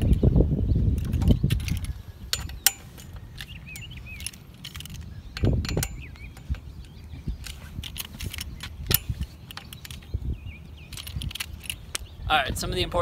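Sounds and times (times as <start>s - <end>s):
allen key clicking on metal: 1.0s - 10.1s, 10.8s - 12.1s
bike knocking as handled: 1.1s - 6.8s.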